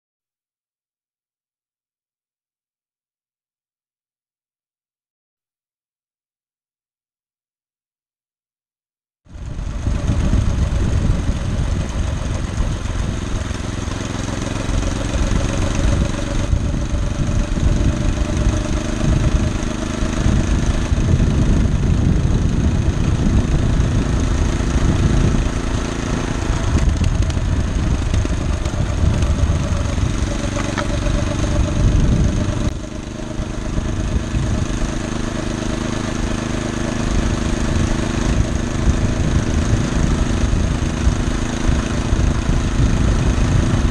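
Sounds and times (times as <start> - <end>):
cart rumbling along rail: 9.3 - 43.9
small engine running: 9.3 - 43.9.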